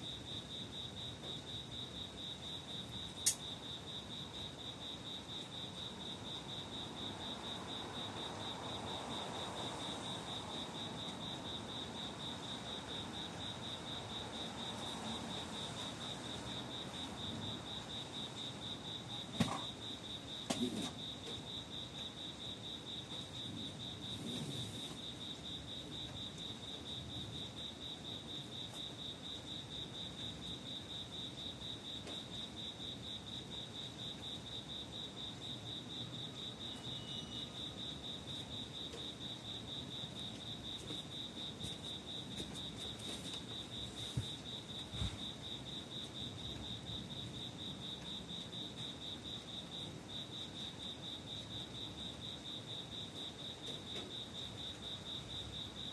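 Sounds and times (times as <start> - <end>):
cricket pulsing trill: 0.0 - 43.0.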